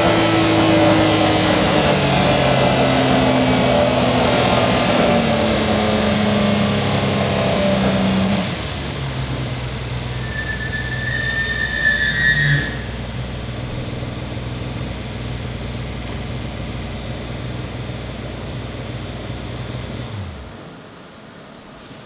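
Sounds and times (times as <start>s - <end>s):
high whistle: 10.1s - 13.0s
car engine idling: 12.6s - 20.6s.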